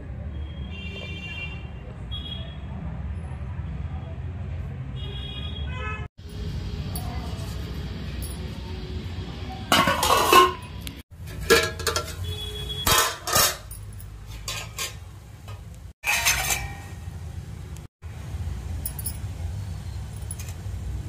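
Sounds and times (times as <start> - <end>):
steamer plate set on pot: 9.7 - 12.2, 12.8 - 13.7
metal utensils clanking: 9.7 - 17.2.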